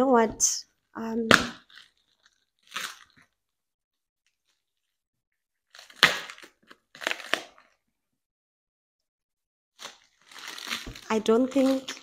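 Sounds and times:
plastic wrapping crackling: 0:01.5 - 0:03.4, 0:09.8 - 0:12.0.

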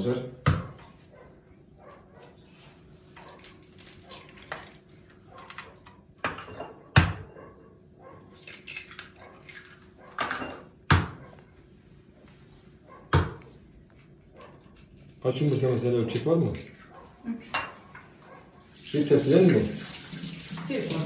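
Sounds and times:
dishes and utensils clattering: 0:06.2 - 0:07.4, 0:08.5 - 0:10.8, 0:16.6 - 0:18.1.

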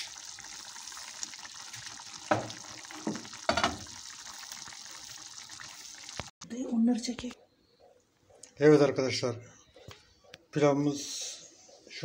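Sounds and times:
stew bubbling and sizzling in pot: 0:00.0 - 0:06.3.

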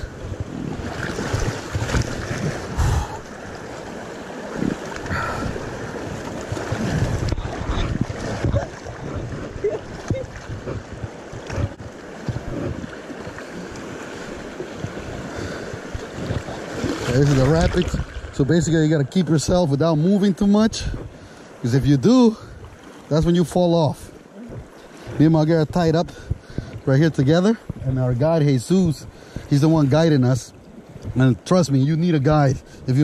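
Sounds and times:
water slapping thumps: 0:00.0 - 0:19.9, 0:24.4 - 0:31.6.

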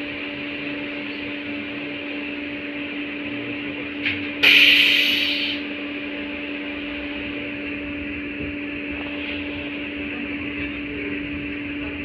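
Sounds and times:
tram electrical hum: 0:00.0 - 0:12.0
loud hiss: 0:04.4 - 0:05.6.

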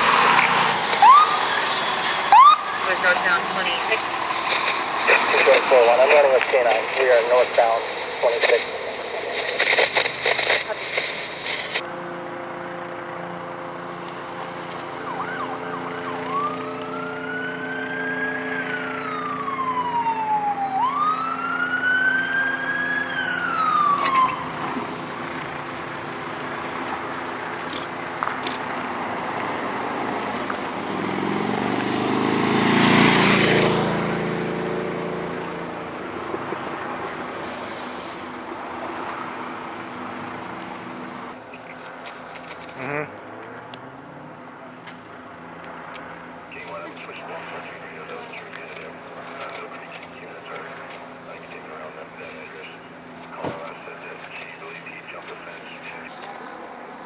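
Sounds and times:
vehicle passing by: 0:00.0 - 0:08.2, 0:11.4 - 0:51.8
police siren wailing: 0:00.0 - 0:08.9, 0:11.4 - 0:30.9.

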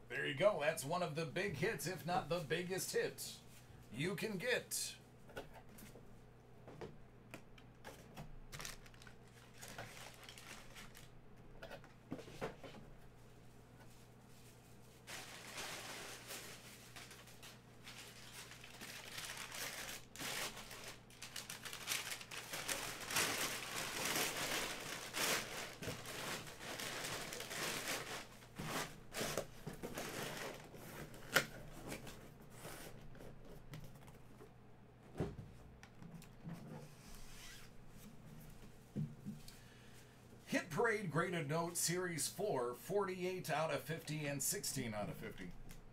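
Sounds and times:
packing paper crumpling and rustling: 0:07.9 - 0:11.2, 0:14.9 - 0:32.2.

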